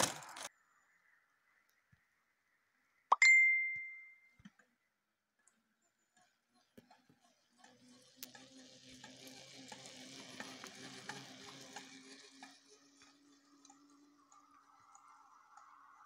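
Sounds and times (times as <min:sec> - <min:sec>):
bicycle tyre hiss and hum: 0:07.4 - 0:16.0.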